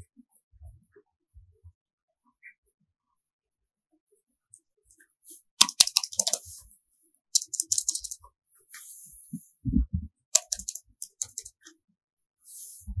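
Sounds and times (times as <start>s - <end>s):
laptop keyboard clicks: 5.6s - 6.5s, 7.4s - 8.2s, 10.4s - 11.5s.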